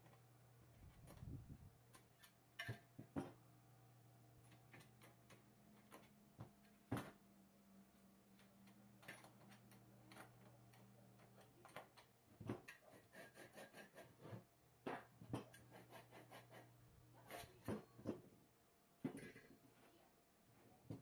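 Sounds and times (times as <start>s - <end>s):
low steady hum: 0.0s - 12.6s
scrapes and knocks on parts: 0.8s - 3.4s, 4.4s - 7.2s, 8.4s - 18.3s, 19.0s - 20.0s.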